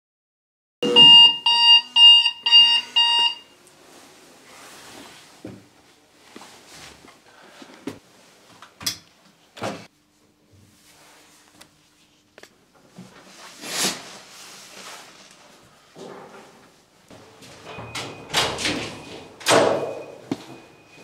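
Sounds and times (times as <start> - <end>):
alarm clock beeping: 0.8 - 3.5.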